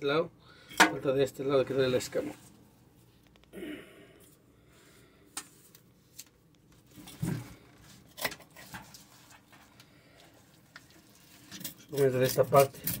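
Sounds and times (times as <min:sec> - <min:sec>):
fish scaler scraping scales: 0:11.0 - 0:13.0.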